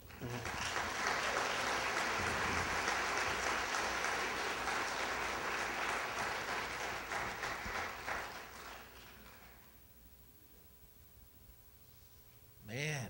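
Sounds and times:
congregation applauding: 0:00.0 - 0:09.8.

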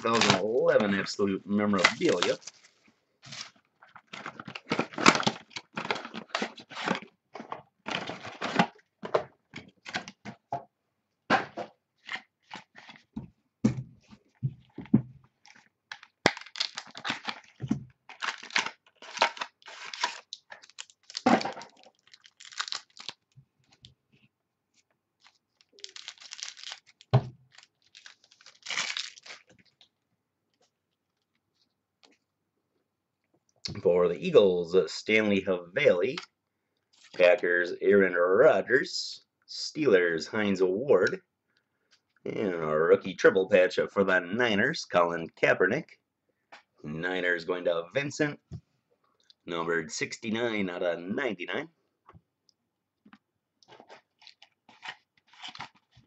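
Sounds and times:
packaging torn and crinkled: 0:01.8 - 0:07.0, 0:15.4 - 0:23.8, 0:25.2 - 0:29.8, 0:53.7 - 0:56.0.

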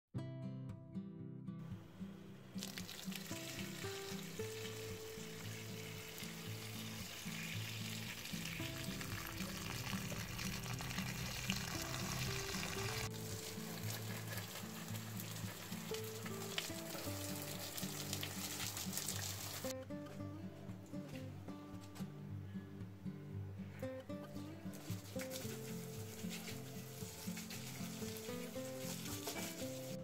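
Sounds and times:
background music: 0:00.2 - 0:30.0
hose water spraying on plants: 0:02.6 - 0:19.7, 0:24.7 - 0:30.0.

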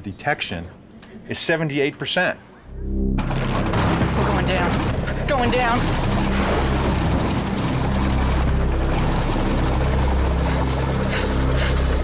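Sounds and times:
propeller aircraft engine drone: 0:02.8 - 0:12.0.

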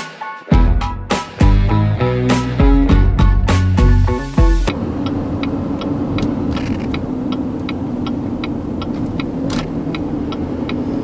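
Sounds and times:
engine and road noise in cabin: 0:00.6 - 0:11.0
turn signal ticking: 0:02.7 - 0:11.0.

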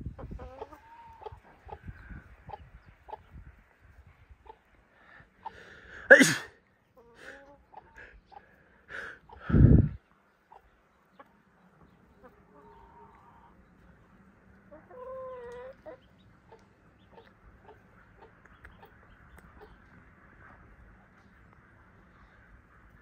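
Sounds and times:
poultry calling: 0:00.2 - 0:03.3, 0:10.3 - 0:23.0.

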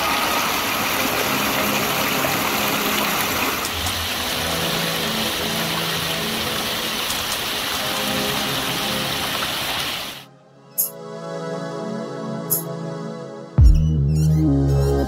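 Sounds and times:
water rushing over rocks: 0:00.0 - 0:10.3.

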